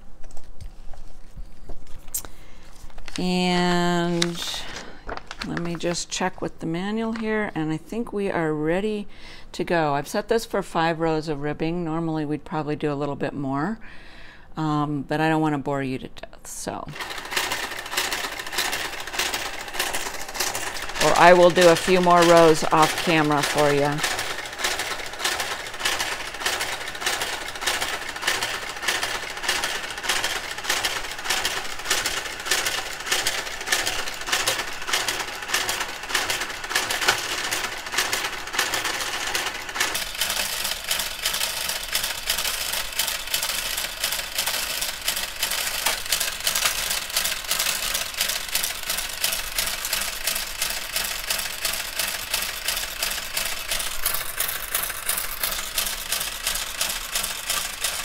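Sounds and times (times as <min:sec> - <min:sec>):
knitting machine carriage clicking: 0:16.9 - 0:58.0.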